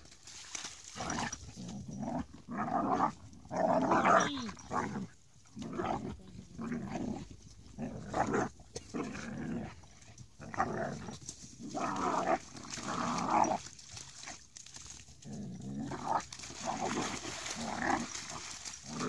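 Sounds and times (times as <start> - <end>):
dogs growling: 0.9 - 14.3, 15.2 - 19.0
water splashing: 16.4 - 19.0.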